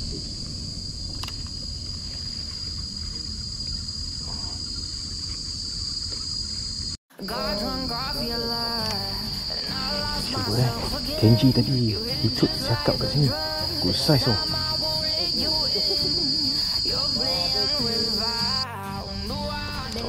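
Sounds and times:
low background rumble: 0.0 - 6.0
insects chorus: 0.0 - 20.0.

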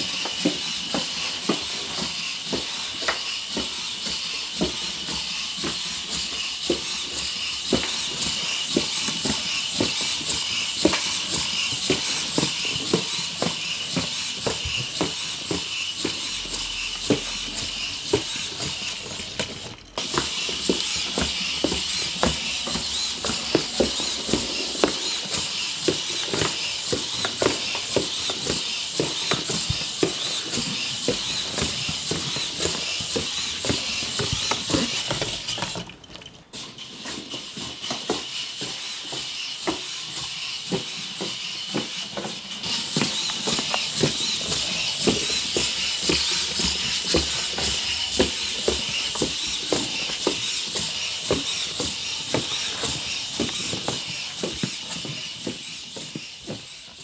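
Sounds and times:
robot feet tapping and clicking: 0.0 - 57.0
servo motors whirring: 0.0 - 57.0.

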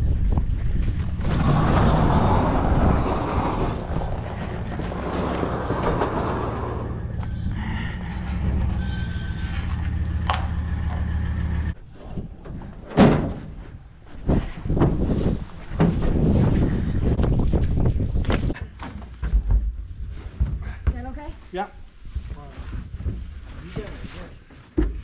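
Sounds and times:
sliding barn door rumbling: 0.6 - 17.1
engine idling: 6.8 - 11.8.

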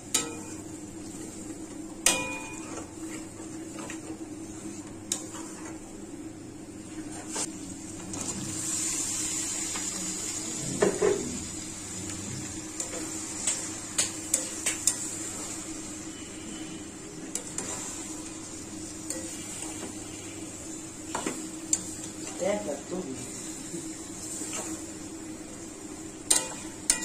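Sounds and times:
pan sizzling: 7.1 - 27.0.

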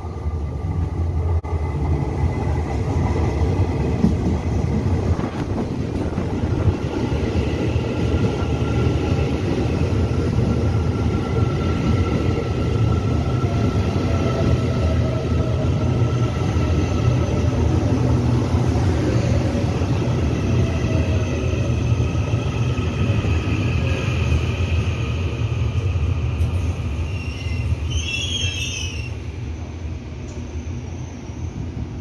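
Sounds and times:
train wheels rumbling on rails: 0.0 - 32.0
brief high squeal: 27.0 - 29.2.

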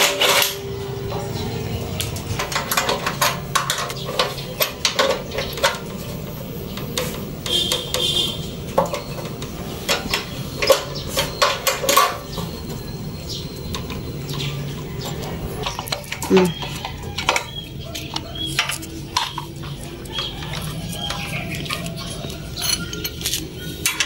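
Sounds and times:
metal parts knocking together: 0.0 - 24.0
wrench clinking on bolts: 8.8 - 24.0.

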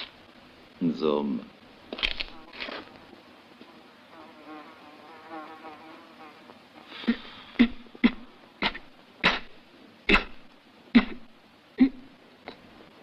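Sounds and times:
insect buzzing: 1.9 - 8.6.

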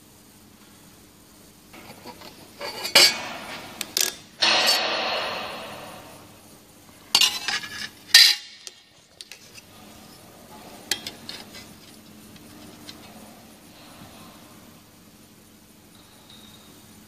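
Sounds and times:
steel sheet clattering on metal: 2.8 - 3.8, 4.4 - 6.3.

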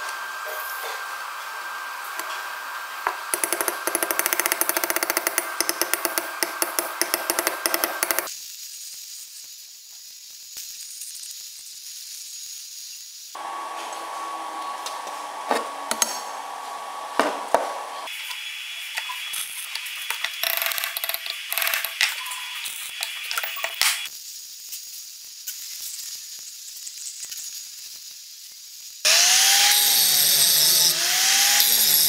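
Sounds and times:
hammer tapping on steel: 3.4 - 8.3
steady hiss: 8.3 - 13.4.

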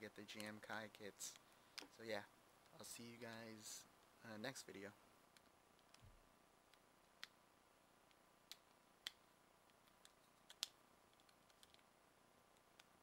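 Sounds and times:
plastic parts clicking together: 8.1 - 11.9.

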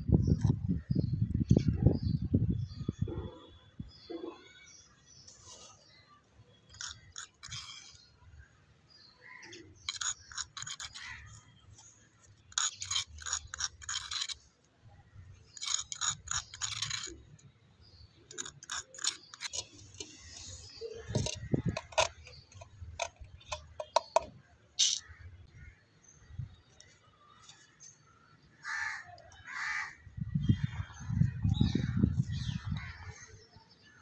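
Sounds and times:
utensil scraping clay pot: 6.6 - 14.5, 15.2 - 25.3.

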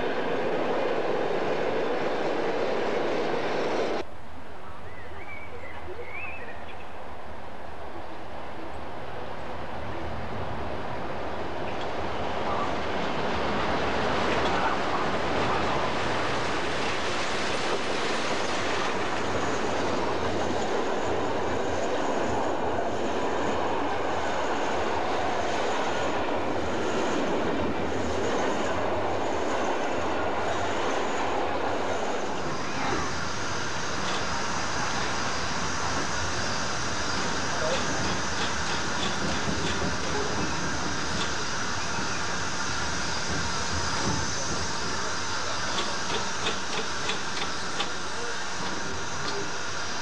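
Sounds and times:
train wheels clattering on rails: 11.6 - 50.0.

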